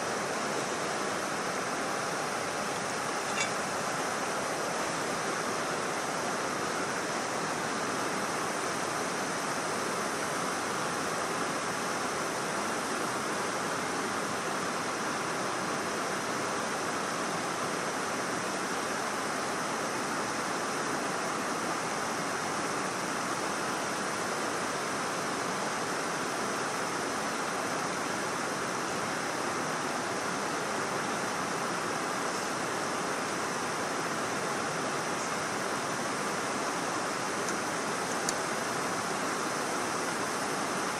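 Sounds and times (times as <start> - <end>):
water rushing over a dam: 0.0 - 40.9.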